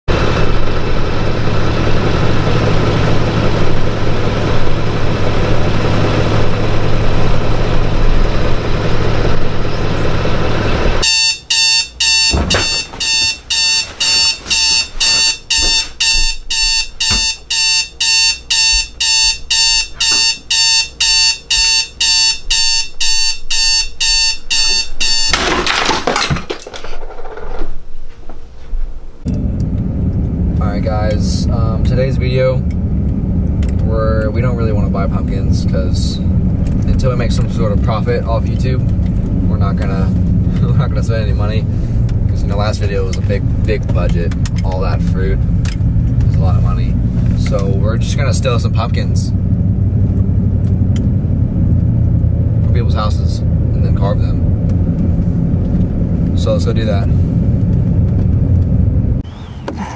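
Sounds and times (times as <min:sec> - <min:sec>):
loud noise with low hum: 0:00.1 - 0:13.3, 0:29.1 - 0:59.3
alarm clock beeping: 0:11.0 - 0:25.5
rustling: 0:12.4 - 0:16.9.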